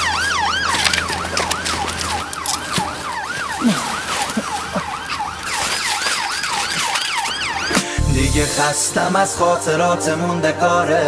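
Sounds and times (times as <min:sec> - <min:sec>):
police siren yelping: 0:00.0 - 0:08.0.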